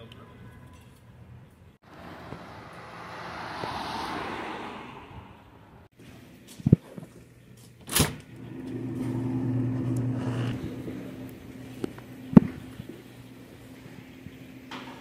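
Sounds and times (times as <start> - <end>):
low electrical hum: 7.1 - 15.0.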